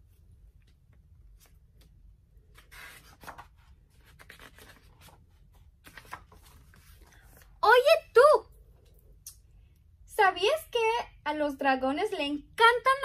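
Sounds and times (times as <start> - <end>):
book pages turning: 0.6 - 7.6
paper rustling: 0.7 - 7.6.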